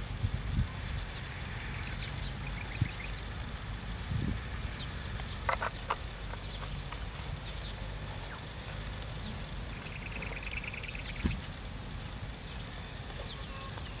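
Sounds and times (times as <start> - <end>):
bird chirps: 3.9 - 14.0
rapid bird trill: 9.2 - 14.0.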